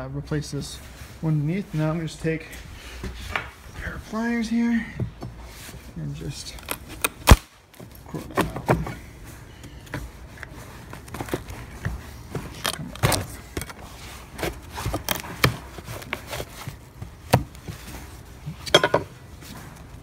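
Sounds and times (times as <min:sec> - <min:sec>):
pry bar scraping rotted wood: 0:12.5 - 0:16.6.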